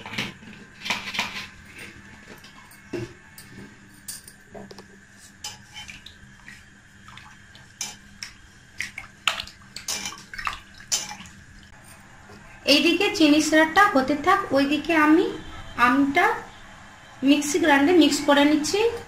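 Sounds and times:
water swishing: 0:05.6 - 0:11.7.

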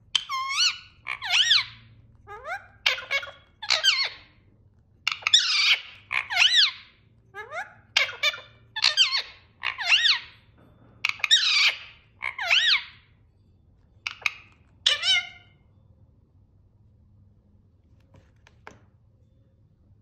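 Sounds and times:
parrot squawking: 0:00.1 - 0:10.4, 0:11.0 - 0:13.1, 0:14.0 - 0:15.6.

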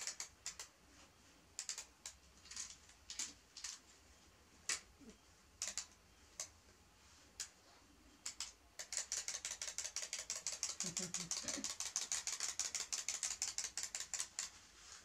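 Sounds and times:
wind-up toy clicking: 0:00.0 - 0:00.7, 0:08.2 - 0:14.5.

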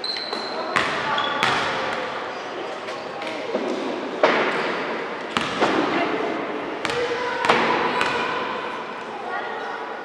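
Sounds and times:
basketballs bouncing on wooden floor: 0:00.8 - 0:01.8, 0:05.3 - 0:06.0, 0:06.8 - 0:08.4.

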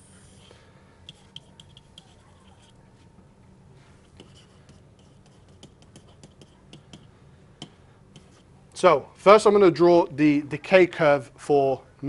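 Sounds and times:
low room hum: 0:00.0 - 0:12.0
stylus tapping and scratching: 0:01.0 - 0:02.8, 0:04.0 - 0:08.5.

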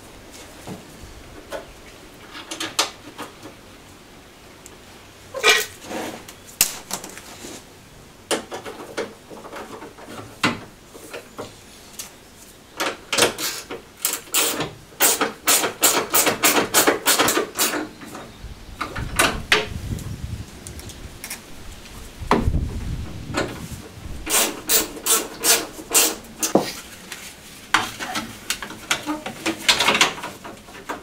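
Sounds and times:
low rumble: 0:19.8 - 0:25.0.

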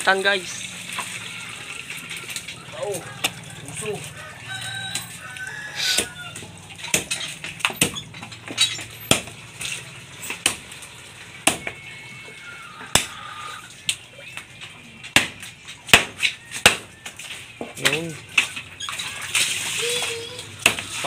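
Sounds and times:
knife chopping bone: 0:11.5 - 0:11.8, 0:12.9 - 0:13.1, 0:15.1 - 0:16.9.

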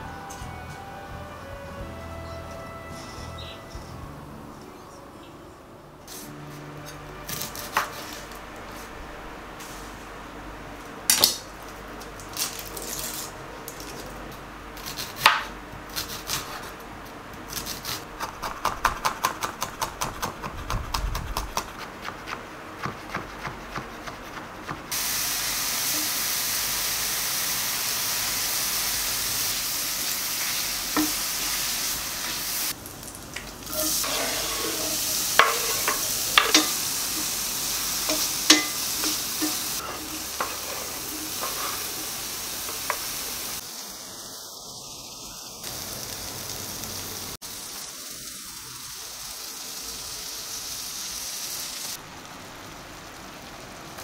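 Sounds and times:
food sizzling in a hot pan: 0:24.9 - 0:54.0
utensil clinking against pan: 0:35.4 - 0:37.3, 0:38.1 - 0:41.6.

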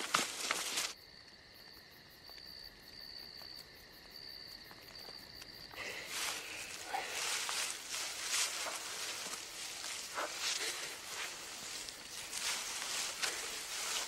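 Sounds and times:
rustling noise: 0:00.0 - 0:01.0, 0:06.1 - 0:14.0
crickets trilling: 0:00.0 - 0:14.0.

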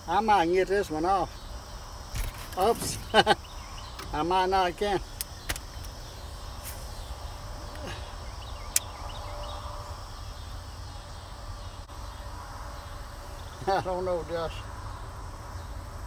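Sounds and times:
faint bird chirps: 0:05.0 - 0:13.8.

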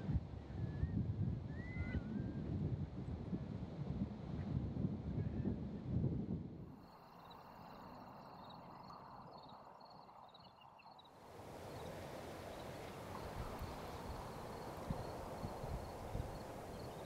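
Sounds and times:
wind through grass: 0:11.1 - 0:17.0.

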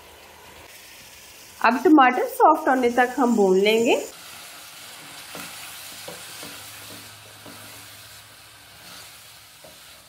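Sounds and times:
food sizzling in a pot: 0:00.0 - 0:10.0
spatula scraping and knocking pot: 0:05.0 - 0:07.8.

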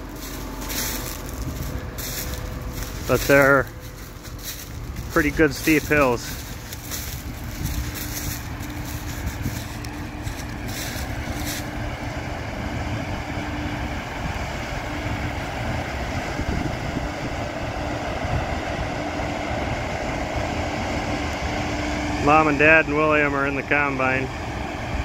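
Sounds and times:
combine harvester engine drone: 0:00.0 - 0:25.0
wind buffeting microphone: 0:00.2 - 0:13.4, 0:14.1 - 0:20.0.

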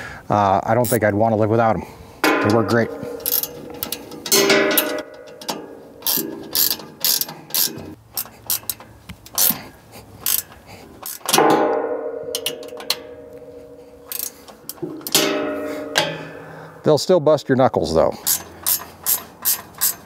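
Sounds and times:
ratchet wrench clicking: 0:03.0 - 0:09.6, 0:10.2 - 0:11.4, 0:14.1 - 0:15.2, 0:18.2 - 0:20.0.

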